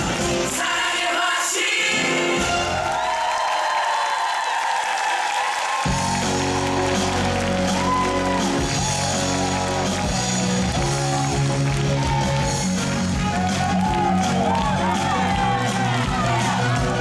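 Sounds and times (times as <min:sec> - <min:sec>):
people singing: 0:00.0 - 0:02.7
upbeat musical theatre band: 0:00.0 - 0:17.0.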